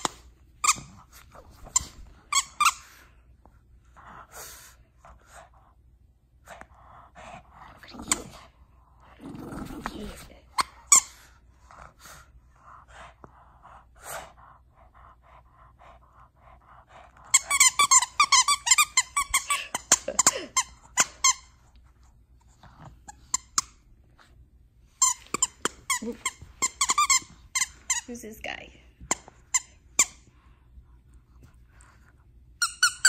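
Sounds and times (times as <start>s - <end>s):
squeaky toy squeaking: 1.7s - 2.9s, 17.3s - 21.5s, 25.0s - 28.1s, 32.6s - 33.0s.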